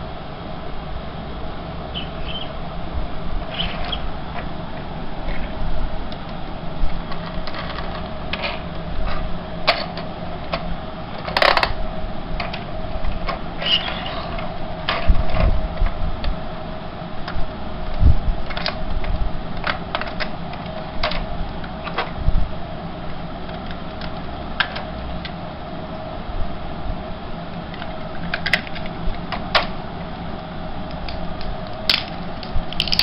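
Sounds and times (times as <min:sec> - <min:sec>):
toy motor and gears whirring: 0:03.5 - 0:04.1, 0:13.6 - 0:15.3
plastic toy clicks and knocks: 0:11.2 - 0:11.8, 0:31.0 - 0:33.0.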